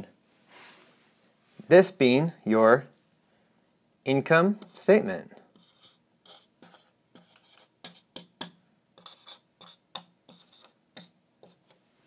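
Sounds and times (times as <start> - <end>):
marker pen scratching: 4.5 - 11.8.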